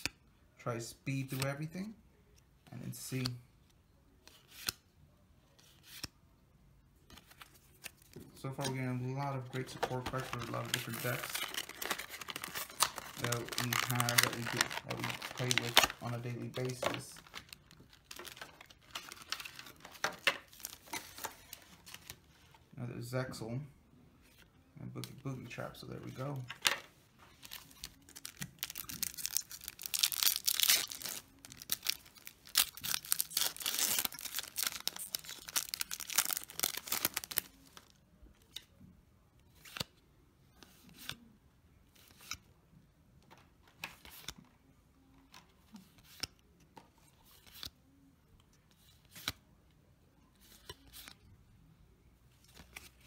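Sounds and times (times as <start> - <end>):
cards flipping with light clicks: 1.2 - 1.6, 2.3 - 3.5, 4.2 - 4.9, 5.5 - 6.2, 7.1 - 22.2, 39.4 - 40.0, 40.6 - 41.3, 41.9 - 42.5, 43.2 - 44.5, 45.2 - 49.5, 50.4 - 51.3, 52.4 - 53.0
foil pack tearing and crinkling: 10.6 - 16.1, 28.2 - 37.5.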